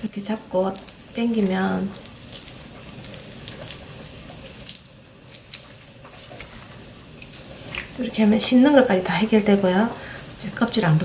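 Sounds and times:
wet dripping and squishing: 0.0 - 8.0.

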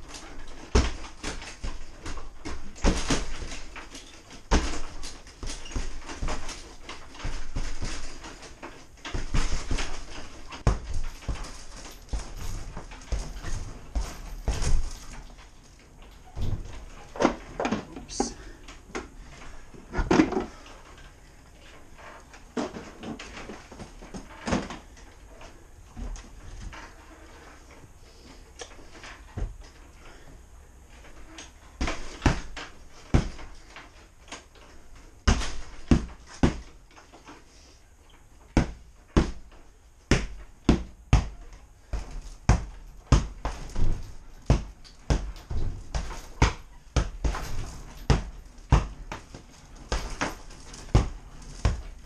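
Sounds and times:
strikes on punching bag: 38.6 - 39.5, 40.1 - 41.4.

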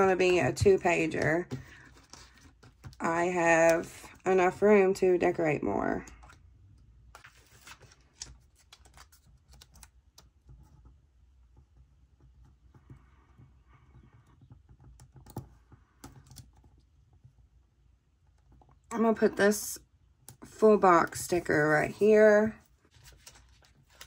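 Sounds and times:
soft paper rustle: 1.5 - 3.0, 7.1 - 10.8, 22.0 - 24.0
small clicks and taps: 8.2 - 17.4.

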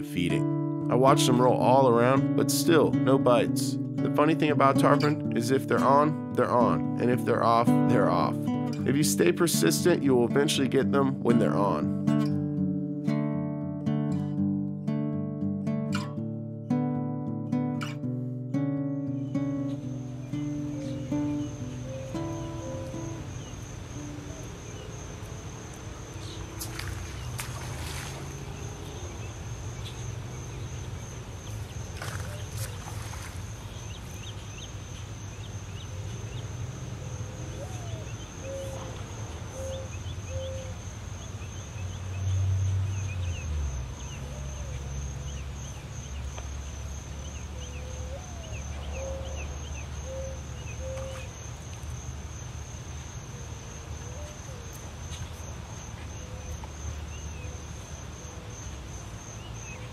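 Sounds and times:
crickets trilling: 19.0 - 59.9
short insect calls: 19.1 - 59.9.

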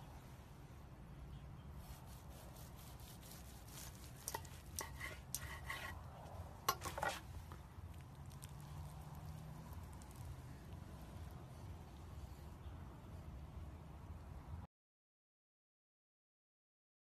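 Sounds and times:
knife cutting crusted meatloaf: 1.8 - 6.0.

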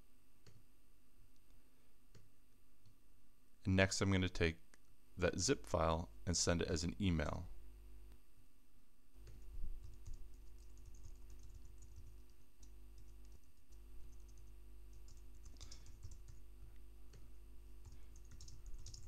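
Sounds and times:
faint typing on keyboard: 9.2 - 19.0.

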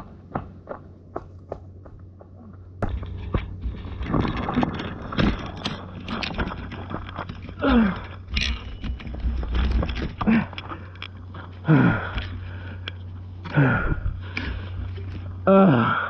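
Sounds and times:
bicycle rattling and knocking: 2.8 - 13.0
tyres crunching over gravel: 2.8 - 15.4.

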